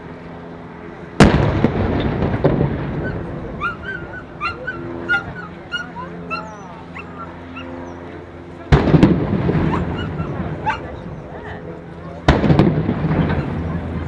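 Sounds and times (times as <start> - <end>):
cannon boom: 1.2 - 3.8, 8.7 - 10.6, 12.2 - 14.0
dog whimpering and yipping: 3.0 - 7.8, 9.7 - 10.9.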